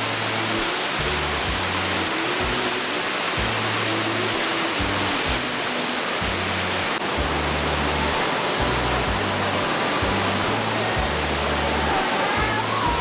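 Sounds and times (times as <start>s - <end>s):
low bass music: 0.0s - 13.0s
waterfall rushing: 0.0s - 13.0s.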